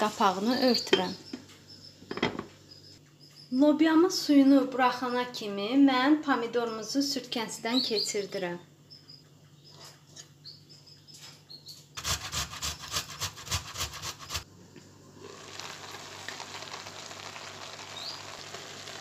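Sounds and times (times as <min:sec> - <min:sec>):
green beans sizzling in pot: 0:00.0 - 0:00.9, 0:15.2 - 0:19.0
tomato scraping on metal grater: 0:12.0 - 0:14.4.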